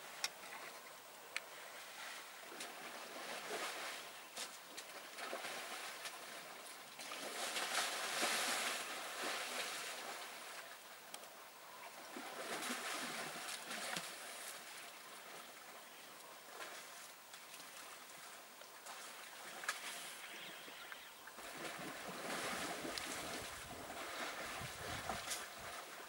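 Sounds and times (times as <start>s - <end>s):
elephants splashing in mud: 1.8s - 4.1s, 4.7s - 10.6s, 12.1s - 15.5s, 21.4s - 26.0s.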